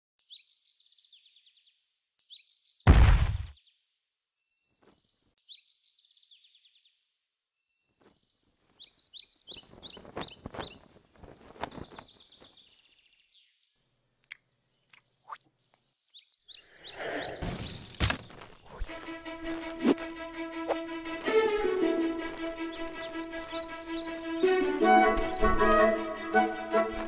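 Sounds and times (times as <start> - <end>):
birds chirping: 3.6 - 27.0
rustling and scraping dirt: 7.9 - 12.8, 17.4 - 26.0.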